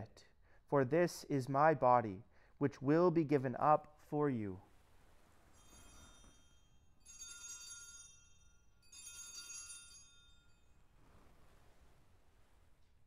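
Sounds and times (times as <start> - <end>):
altar bells ringing: 5.5 - 10.9.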